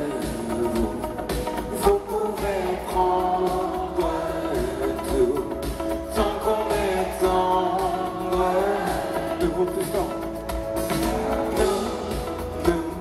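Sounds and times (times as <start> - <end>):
drums: 0.0 - 13.0
keyboards: 0.0 - 13.0
person singing: 0.0 - 13.0.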